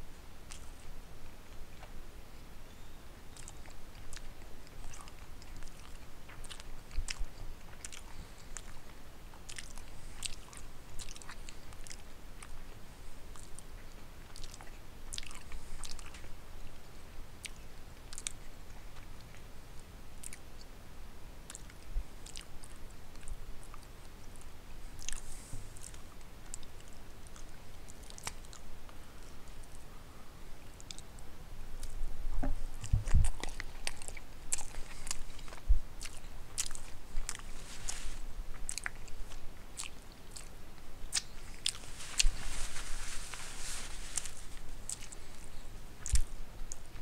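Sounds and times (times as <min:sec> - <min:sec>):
mouth clicks and smacks: 0:03.3 - 0:12.6, 0:13.3 - 0:16.3, 0:17.4 - 0:20.7, 0:21.5 - 0:29.0, 0:31.8 - 0:47.0
person chewing food: 0:03.3 - 0:12.7, 0:13.3 - 0:16.3, 0:17.4 - 0:19.4, 0:21.5 - 0:28.6, 0:32.8 - 0:47.0.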